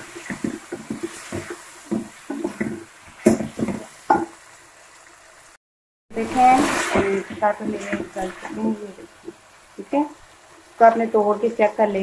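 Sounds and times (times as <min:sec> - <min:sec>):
wooden spoon stirring in pan: 0:00.0 - 0:04.4, 0:06.2 - 0:11.2
faint sizzle: 0:00.0 - 0:12.0
spoon knocking against pan: 0:00.3 - 0:04.4.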